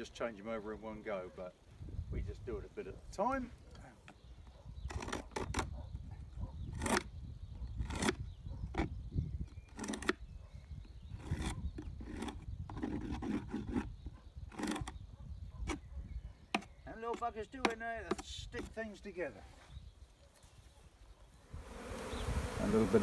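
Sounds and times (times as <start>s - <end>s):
wind rumble on microphone: 1.7s - 3.1s, 4.2s - 16.5s, 21.4s - 23.0s
hive tool scraping wooden box: 7.8s - 10.2s, 11.0s - 15.0s.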